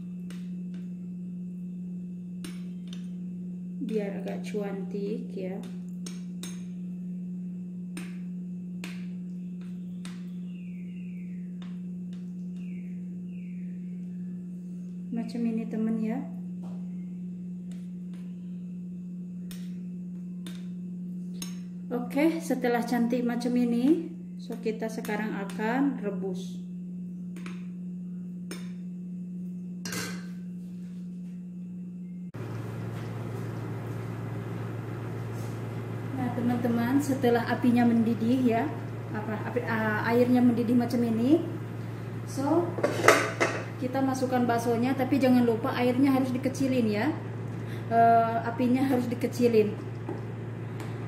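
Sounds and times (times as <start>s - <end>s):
steady low hum: 0.0s - 51.0s
gas stove rushing: 32.4s - 43.9s
metal spoon scraping ceramic bowl: 42.8s - 43.7s.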